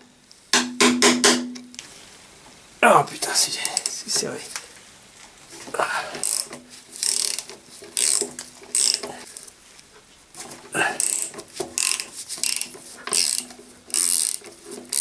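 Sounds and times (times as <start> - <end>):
ratcheting spanner clicking: 6.2 - 9.2, 11.0 - 15.0.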